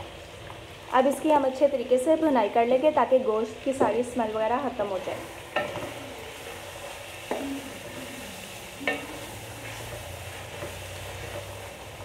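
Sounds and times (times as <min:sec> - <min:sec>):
meat sizzling in hot oil: 0:00.0 - 0:12.0
wooden spoon scraping a pot: 0:05.5 - 0:11.8.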